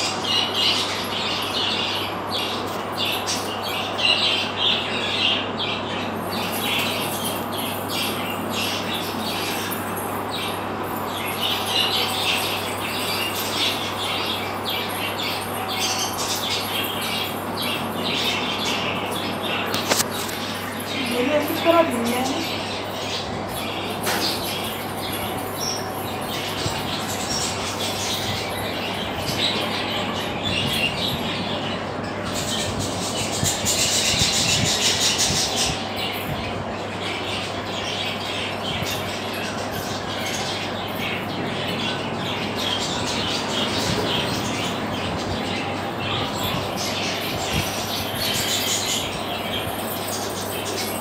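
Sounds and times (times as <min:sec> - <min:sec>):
wings fluttering and rustling: 0:06.0 - 0:29.7.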